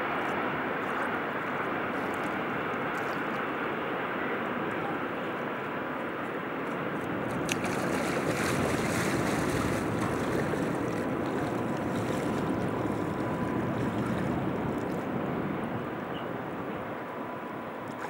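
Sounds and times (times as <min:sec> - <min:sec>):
river water rushing: 0:07.1 - 0:18.0.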